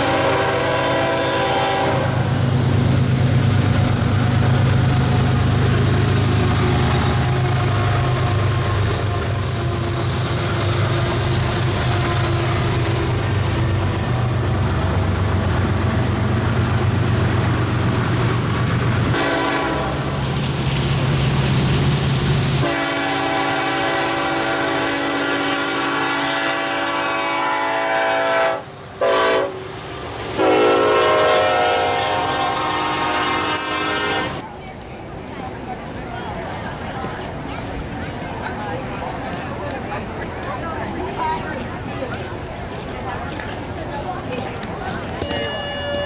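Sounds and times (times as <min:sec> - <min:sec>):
locomotive horn blasts: 0:00.0 - 0:02.2, 0:19.1 - 0:20.1, 0:22.6 - 0:29.6, 0:30.4 - 0:34.4, 0:45.2 - 0:46.0
diesel locomotive engine drone: 0:00.0 - 0:46.0
rail noise: 0:00.0 - 0:46.0.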